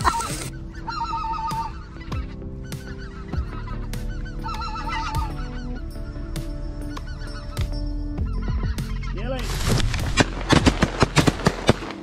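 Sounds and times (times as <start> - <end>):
geese honking: 0.0 - 11.2.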